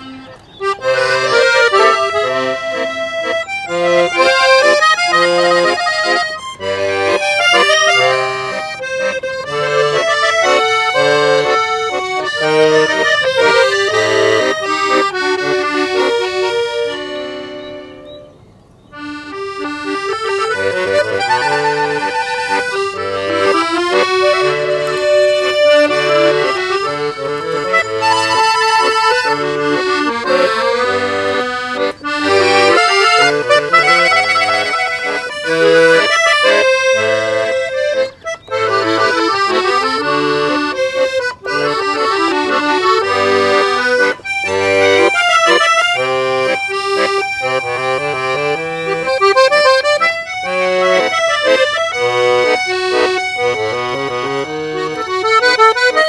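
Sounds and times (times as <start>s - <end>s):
accordions playing a waltz: 0.0s - 56.0s.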